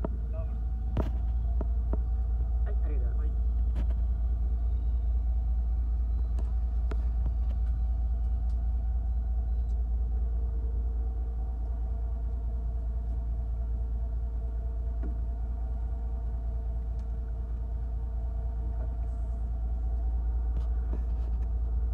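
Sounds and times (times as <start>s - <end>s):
boat engine running: 0.0s - 21.9s.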